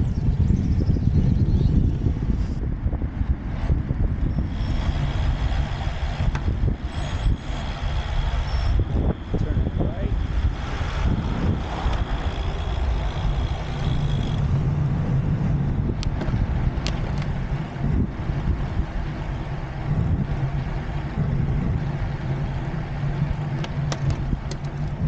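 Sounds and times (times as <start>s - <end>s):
road rumble: 0.0s - 25.0s
wind rushing over microphone: 0.0s - 25.0s
thin high whine: 4.2s - 14.7s.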